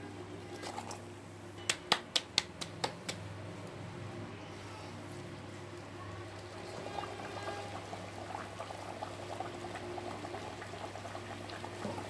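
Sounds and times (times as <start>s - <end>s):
oil bubbling and crackling: 5.4s - 12.0s.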